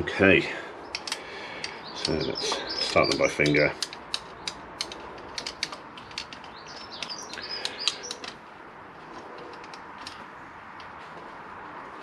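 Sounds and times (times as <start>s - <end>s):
bird chirping: 0.8s - 8.3s
metal bolts clicking and clinking: 0.9s - 8.4s, 9.1s - 10.9s.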